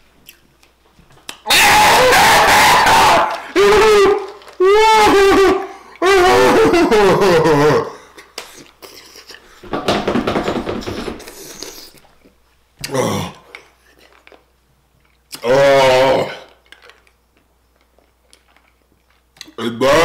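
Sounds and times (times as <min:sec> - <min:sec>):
man crying out in pain: 0:01.7 - 0:08.0.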